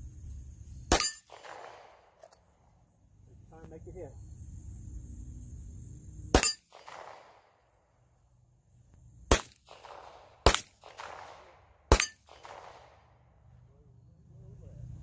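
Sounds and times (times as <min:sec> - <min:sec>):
handgun shots with echo: 0:00.9 - 0:02.3, 0:06.3 - 0:07.4, 0:09.3 - 0:13.0.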